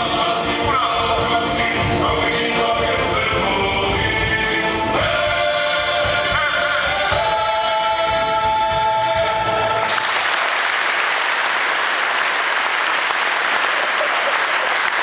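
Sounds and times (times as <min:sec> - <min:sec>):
men singing folk song chord: 0:00.0 - 0:09.9
audience applauding: 0:09.8 - 0:15.0.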